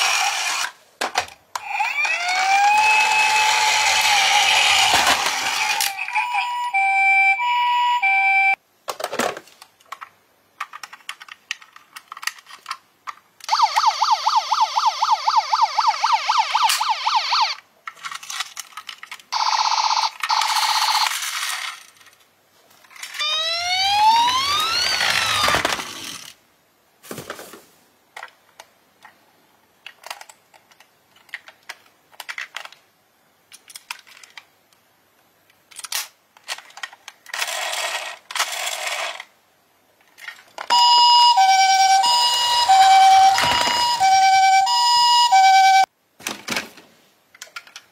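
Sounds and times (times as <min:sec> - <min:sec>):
plastic toy cars clattering: 0:00.0 - 0:02.2, 0:03.3 - 0:06.0, 0:08.9 - 0:13.5, 0:17.8 - 0:23.4, 0:24.1 - 0:26.4, 0:27.1 - 0:32.9, 0:33.5 - 0:34.6, 0:35.5 - 0:39.3, 0:40.0 - 0:40.8, 0:41.4 - 0:44.6, 0:46.2 - 0:47.9
toy electronic sirens: 0:01.6 - 0:08.6, 0:13.5 - 0:17.6, 0:19.4 - 0:21.1, 0:23.1 - 0:25.8, 0:40.7 - 0:45.9.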